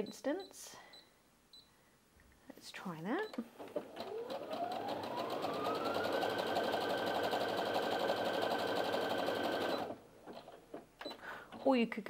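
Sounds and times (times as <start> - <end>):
sewing machine stitching: 3.6 - 11.8.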